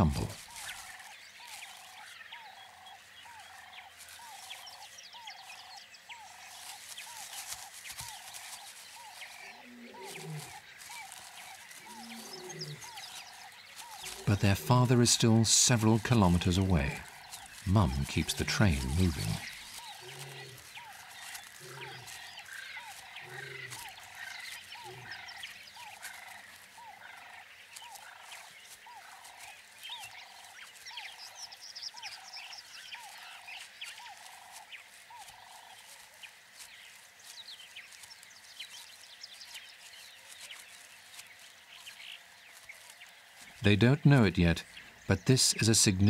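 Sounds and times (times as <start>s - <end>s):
repeated animal call: 9.0s - 30.5s
deep animal calls: 9.4s - 28.3s.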